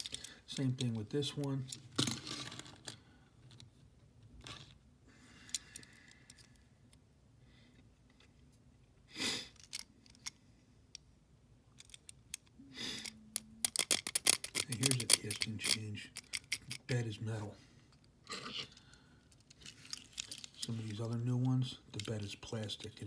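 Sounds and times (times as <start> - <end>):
toy car clicks and handling: 0.0 - 3.6, 5.4 - 7.0, 9.5 - 11.0, 11.8 - 17.0, 18.7 - 23.0.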